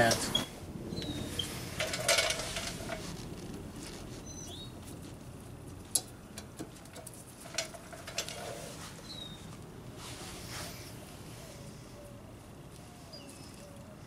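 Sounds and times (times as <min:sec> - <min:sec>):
rustle: 0:00.0 - 0:14.0
bird chirping: 0:00.2 - 0:01.6, 0:04.2 - 0:04.8, 0:09.0 - 0:09.5, 0:13.1 - 0:14.0.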